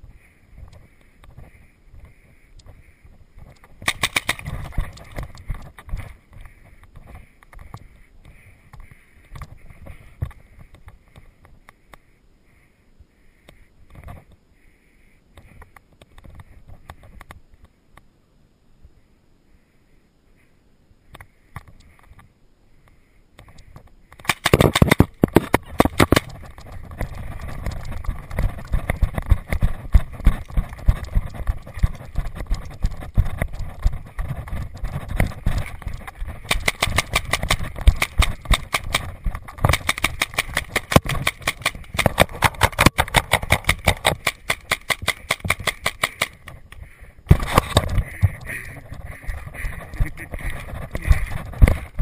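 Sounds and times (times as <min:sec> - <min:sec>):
paintball marker firing: 0:03.8 - 0:05.2, 0:24.2 - 0:29.0, 0:35.2 - 0:46.5
running footsteps: 0:24.2 - 0:52.0.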